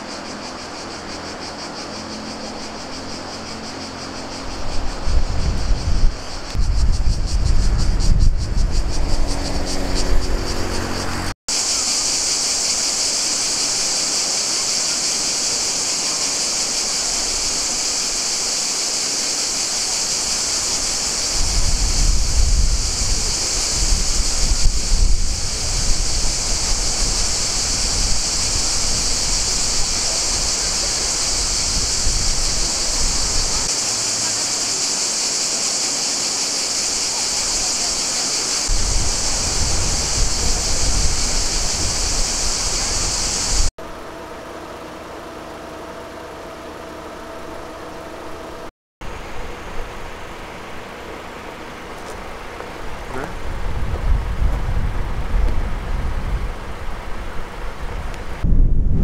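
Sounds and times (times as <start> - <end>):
cicadas chorus: 0.0 - 59.0
wind rumble on microphone: 4.3 - 11.3, 20.6 - 33.8, 38.6 - 43.7, 52.2 - 59.0.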